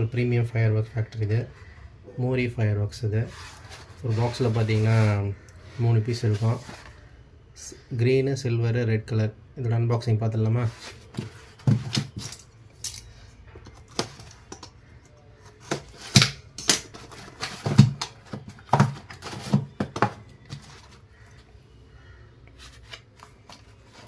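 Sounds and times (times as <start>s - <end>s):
cardboard box handled: 17.1s - 21.0s.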